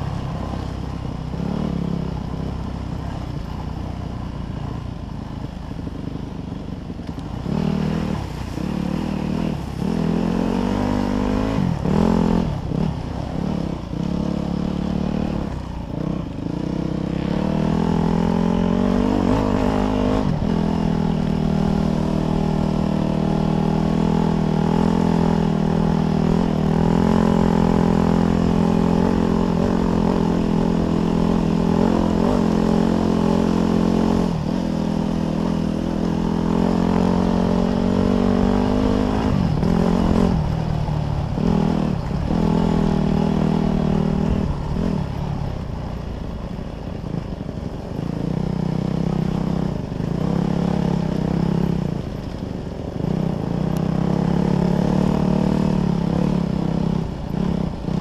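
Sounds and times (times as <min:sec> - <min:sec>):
dirt bike engine revving: 0:07.4 - 0:45.2, 0:53.1 - 0:58.0.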